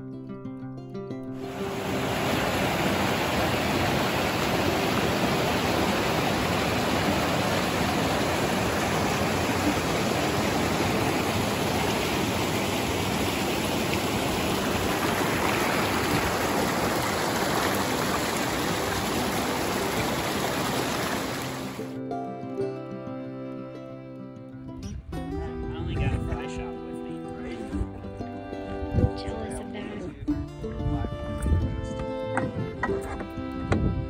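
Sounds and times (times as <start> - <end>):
creek rushing over rapids: 1.4 - 21.9.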